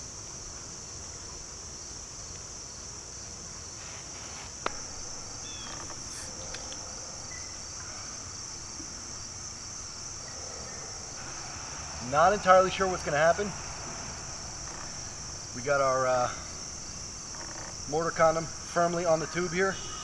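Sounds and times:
high-pitched insect chorus: 0.0s - 20.0s.

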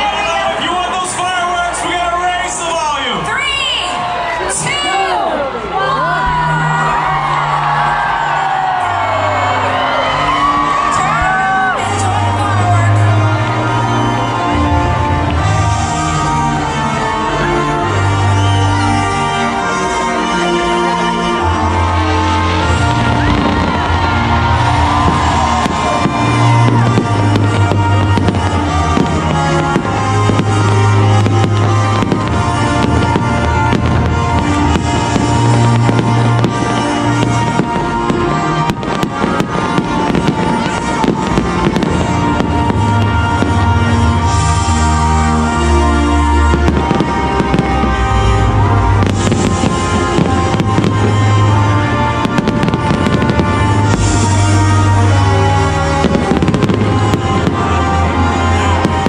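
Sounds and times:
loud music: 0.0s - 59.0s
fireworks bursting and crackling: 21.0s - 59.0s.

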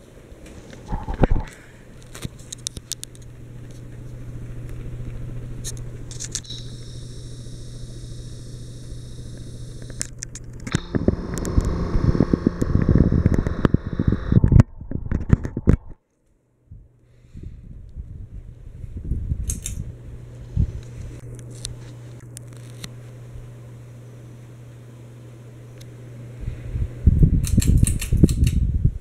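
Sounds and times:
ceiling fan motor humming: 0.0s - 16.0s, 16.6s - 29.0s
crackling rumble on microphone: 0.4s - 16.0s, 17.8s - 23.2s.

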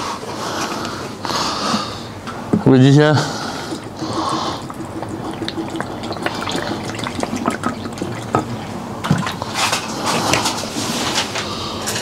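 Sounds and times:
liquid pouring into bowl: 3.6s - 9.6s.

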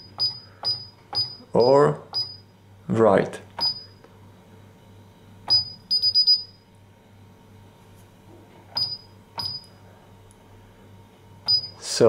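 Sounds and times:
alarm keypad beeps: 0.0s - 2.5s, 3.6s - 4.0s, 5.5s - 6.6s, 8.8s - 9.7s, 11.5s - 11.8s.

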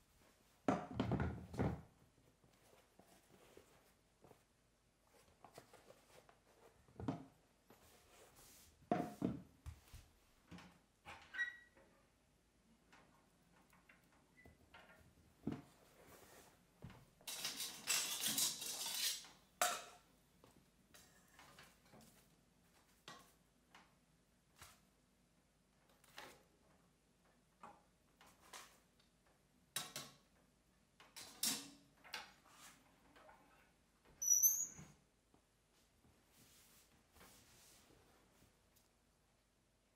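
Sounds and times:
metallic door squeak: 11.3s - 11.8s, 34.2s - 34.9s.

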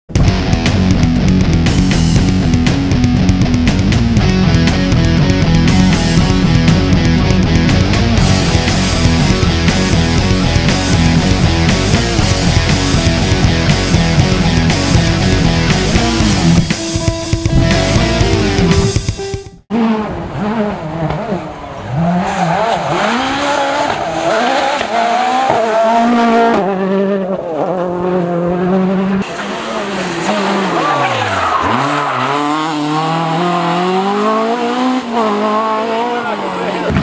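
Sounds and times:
rally car engines revving: 0.1s - 37.0s.

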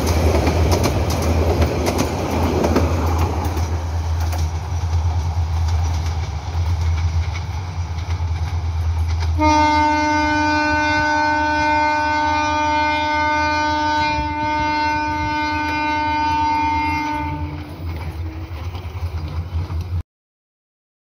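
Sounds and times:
train rumbling on track: 0.0s - 20.0s
train horn blast: 9.3s - 18.6s.

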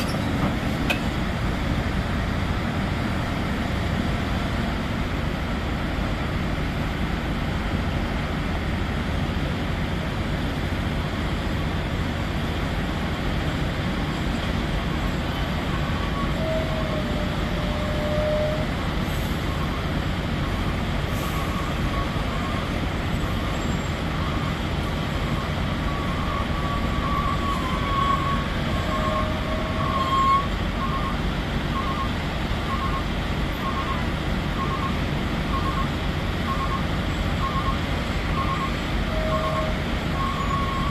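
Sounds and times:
heavy diesel engines running: 0.0s - 40.9s
truck reversing alarm beeping: 15.6s - 18.7s, 25.2s - 40.9s.

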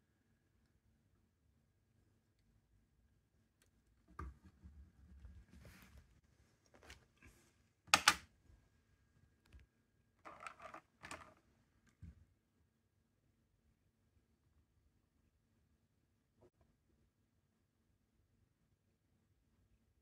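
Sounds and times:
plastic clicks and rattles: 7.9s - 8.2s, 10.3s - 11.4s.

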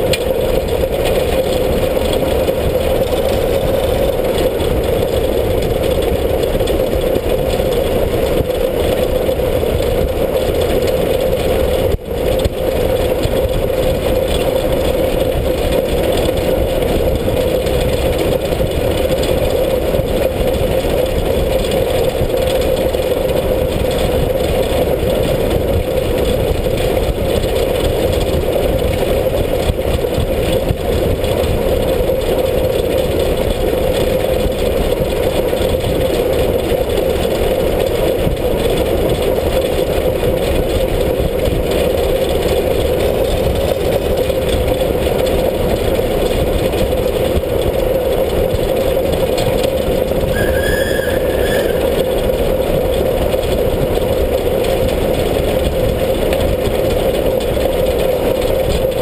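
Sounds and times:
steam locomotive running: 0.0s - 59.0s
high squeal: 2.8s - 4.3s, 50.3s - 52.5s.

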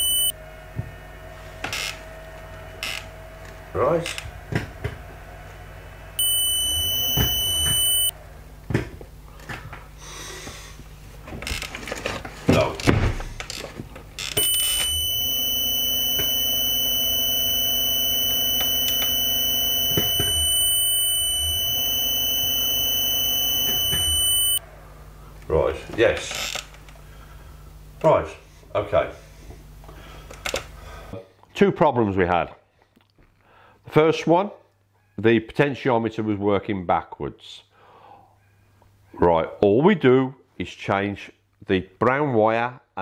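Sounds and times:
electric motor whining: 6.2s - 8.1s, 14.4s - 24.6s
low hum: 14.4s - 24.6s.

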